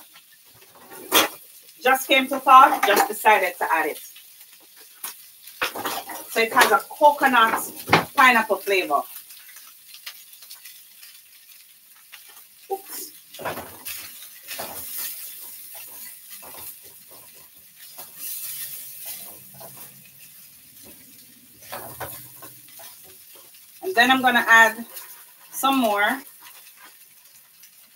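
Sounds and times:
faint sizzle: 0.0 - 27.9
spatula scraping rice in a wok: 9.4 - 23.6, 24.7 - 27.4
spatula tapping pan: 13.3 - 25.1.

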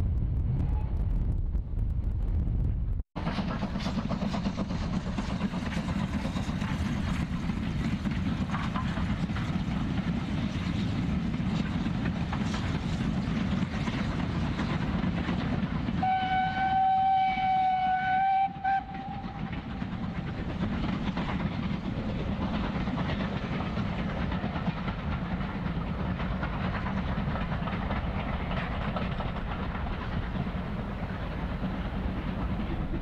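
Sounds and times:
wind buffeting microphone: 0.0 - 16.0, 18.5 - 33.0
steam train rumbling past: 3.2 - 33.0
train wheels clattering on rails: 3.2 - 33.0
train whistle: 16.0 - 19.5.

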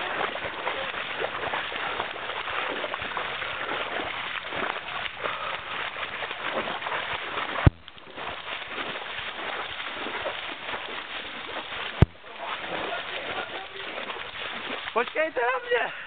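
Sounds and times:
boots splashing through water: 0.0 - 16.0
sharp knock: 7.7 - 7.9.

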